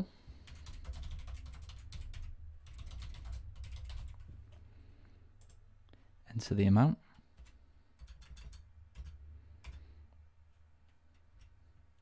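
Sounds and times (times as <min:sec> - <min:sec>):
typing on computer keyboard: 0:00.4 - 0:04.3, 0:07.4 - 0:09.9.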